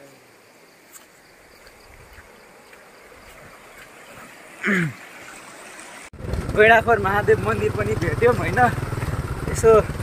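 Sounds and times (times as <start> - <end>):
stream water over rocks: 0.9 - 6.1.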